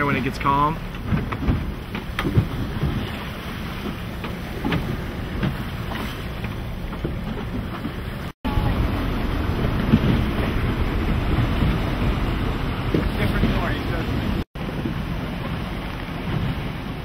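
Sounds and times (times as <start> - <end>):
sea rushing around boat: 0.0 - 17.0
wind buffeting microphone: 0.0 - 17.0.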